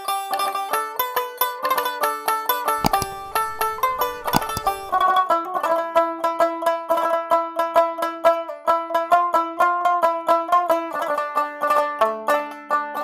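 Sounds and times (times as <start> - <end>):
banjo-like plucked string music: 5.0 - 13.0.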